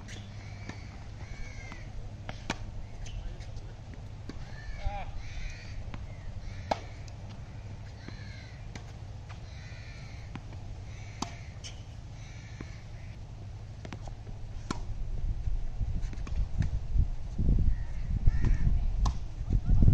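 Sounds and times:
tennis racket hitting ball: 0:00.0 - 0:02.7, 0:05.7 - 0:09.4, 0:11.2 - 0:11.8
bird calling: 0:00.0 - 0:03.5, 0:04.4 - 0:08.7, 0:09.4 - 0:13.2
steady low rumble: 0:00.0 - 0:19.9.

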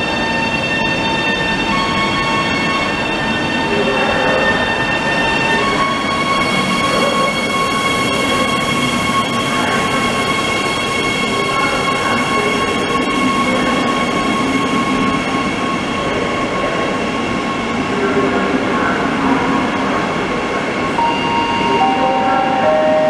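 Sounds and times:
train running noise: 0:00.0 - 0:23.0
descending tones: 0:21.0 - 0:23.0
high steady whine: 0:21.0 - 0:23.0.

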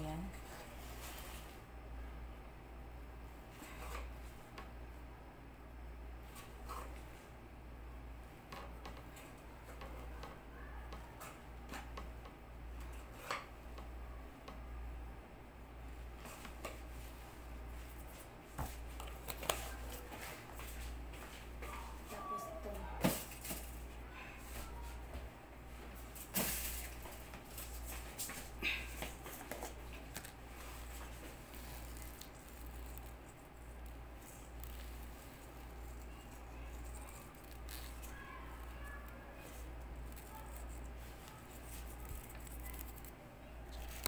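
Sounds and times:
low steady hum: 0:00.0 - 0:44.0.

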